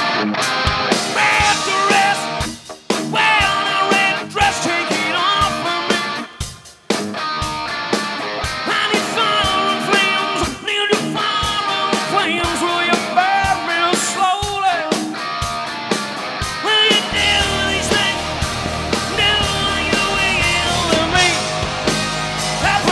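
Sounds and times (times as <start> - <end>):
live rock band: 0.0 - 22.9
man singing lead vocal: 1.0 - 6.7, 8.6 - 15.2, 16.6 - 21.6, 22.6 - 22.9.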